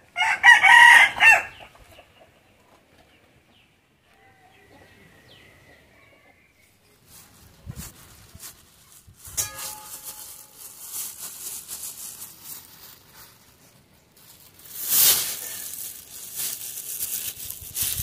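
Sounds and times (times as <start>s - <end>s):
plastic bag crinkling: 7.1s - 18.0s.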